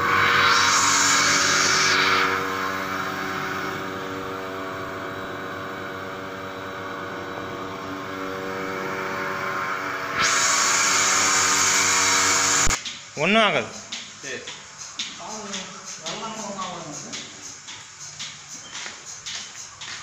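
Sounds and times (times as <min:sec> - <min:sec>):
loud air hiss: 0:00.0 - 0:03.0, 0:10.2 - 0:19.2
vacuum pump humming: 0:00.0 - 0:20.0.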